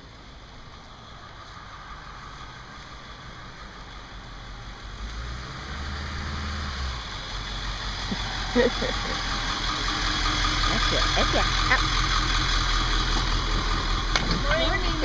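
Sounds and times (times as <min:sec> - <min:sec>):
school bus engine: 0:00.0 - 0:15.0.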